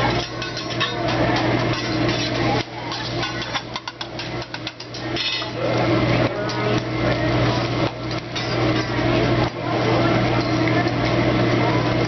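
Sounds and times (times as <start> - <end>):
metal spatula scraping on griddle: 0.0 - 5.7.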